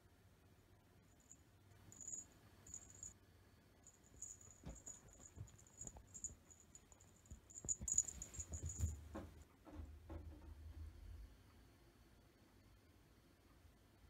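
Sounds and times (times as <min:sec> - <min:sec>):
small collar bell tinkling: 0:01.2 - 0:03.2, 0:03.9 - 0:09.0
kitten paws pattering on blanket: 0:04.0 - 0:09.3.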